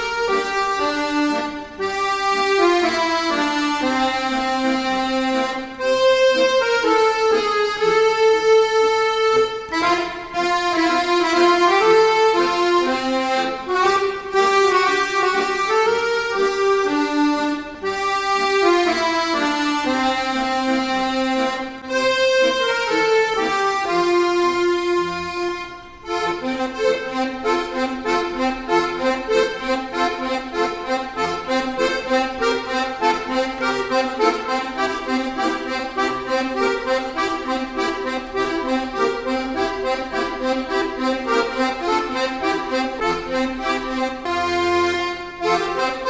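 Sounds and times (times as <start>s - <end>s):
accordions playing: 0.0s - 46.0s.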